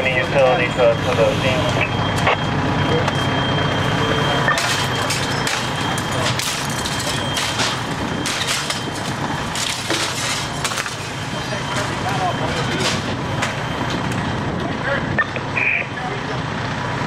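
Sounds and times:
fire engine running: 0.0s - 17.0s
sharp knocks and cracks: 4.5s - 11.1s.

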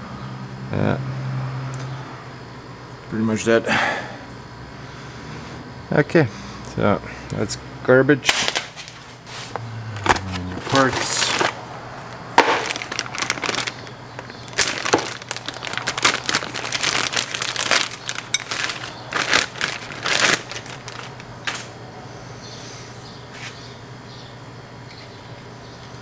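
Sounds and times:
cardboard box crinkling: 10.0s - 11.6s, 12.4s - 21.3s.

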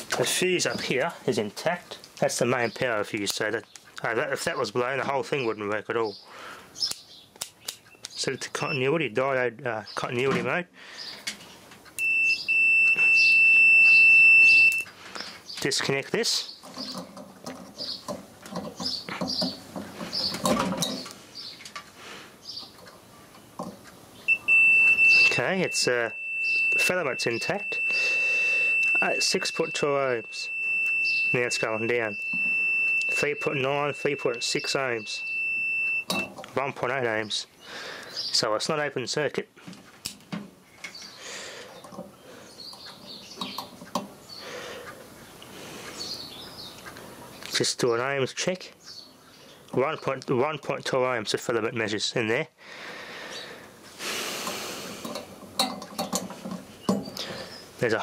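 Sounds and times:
rustling of hands and wires: 0.0s - 4.7s, 10.1s - 22.0s, 22.6s - 36.6s, 39.6s - 44.2s, 53.8s - 58.0s
birds chirping faintly: 0.2s - 52.0s, 52.7s - 58.0s.

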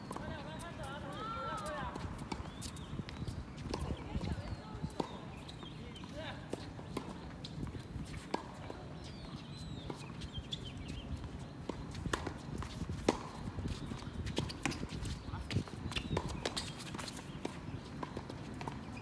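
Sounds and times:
shoe squeaks: 2.4s - 6.1s, 9.0s - 11.0s, 13.7s - 17.4s.

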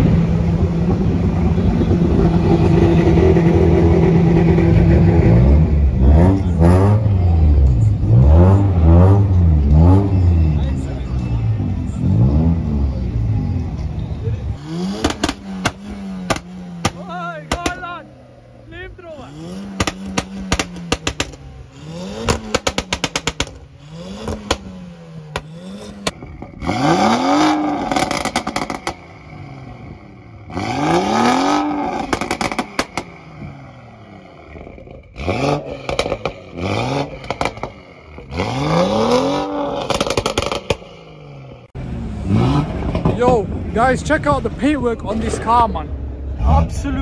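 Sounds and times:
car engine revving: 0.0s - 47.0s
exhaust pops and crackles: 14.9s - 18.0s, 18.7s - 29.8s, 31.5s - 33.6s, 34.5s - 38.5s, 39.4s - 40.9s, 42.7s - 45.7s.

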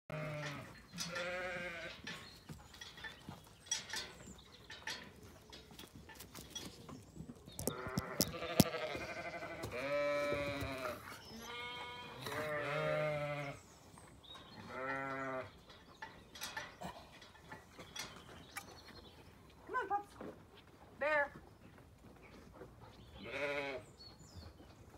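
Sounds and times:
sharp clicks and knocks: 7.5s - 8.9s
sheep bleating: 7.7s - 13.6s, 23.2s - 23.8s.

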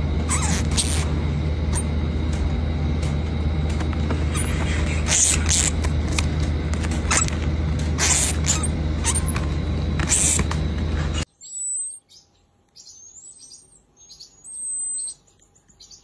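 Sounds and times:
baby marmoset whistling calls: 11.4s - 16.0s.

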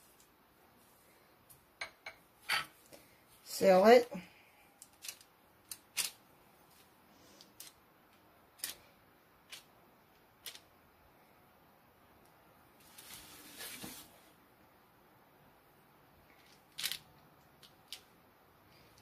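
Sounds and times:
soft rustle: 12.8s - 14.4s.

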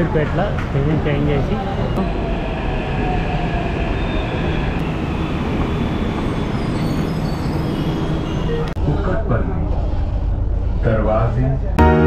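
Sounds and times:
electric train rail noise: 1.6s - 8.8s.

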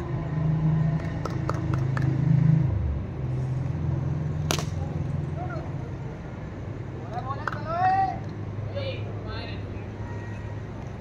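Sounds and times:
cricket bat striking ball: 4.5s - 4.8s.

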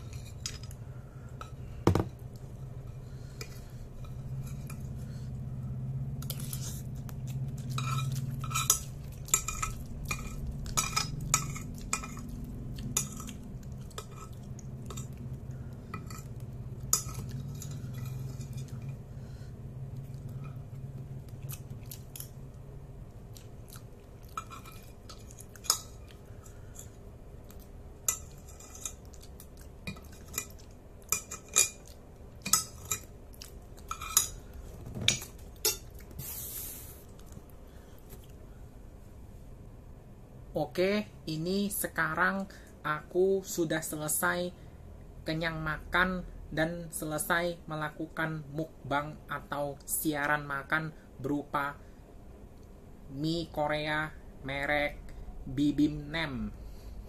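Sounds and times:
chewing: 6.2s - 19.0s, 19.9s - 36.2s, 37.0s - 38.4s.

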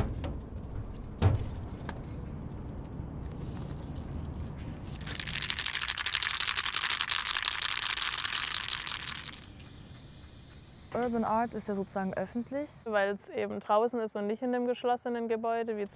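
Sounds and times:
spray paint can rattling: 3.4s - 13.2s.

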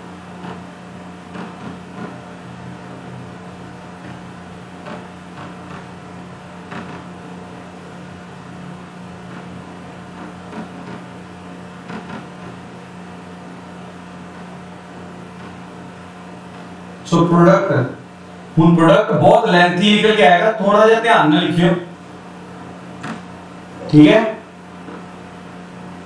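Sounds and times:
low electrical hum: 0.0s - 26.0s.

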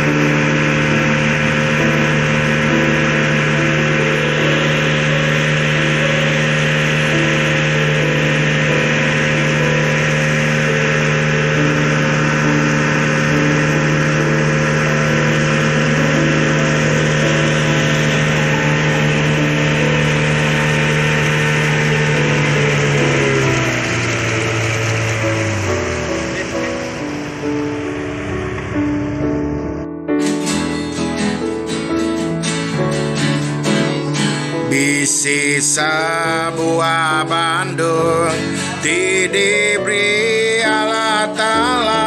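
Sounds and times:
water rushing along hull: 0.0s - 29.5s
boat engine running steadily: 0.0s - 42.0s.

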